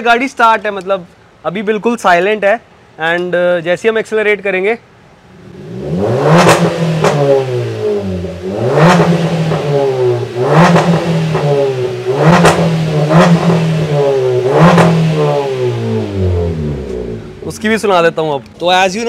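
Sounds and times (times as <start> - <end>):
car exhaust revving: 5.3 - 17.9.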